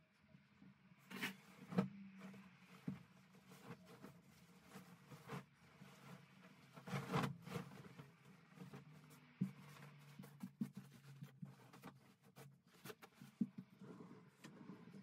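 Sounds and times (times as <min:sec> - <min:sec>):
bedding rustling and swishing: 0:01.3 - 0:15.0.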